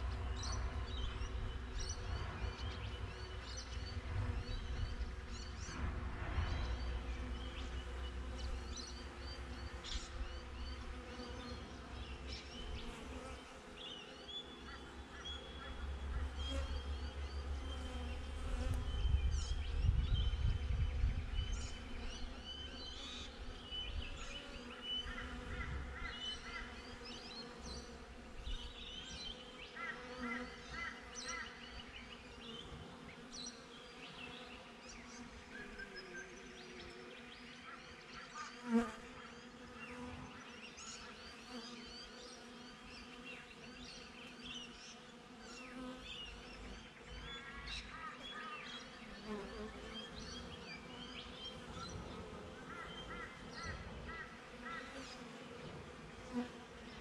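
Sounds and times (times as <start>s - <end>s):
honey bees buzzing: 0.0s - 20.0s, 20.6s - 57.0s.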